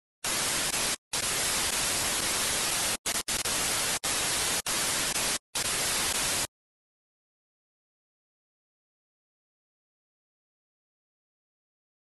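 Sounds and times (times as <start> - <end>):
loud static hiss: 0.2 - 6.5.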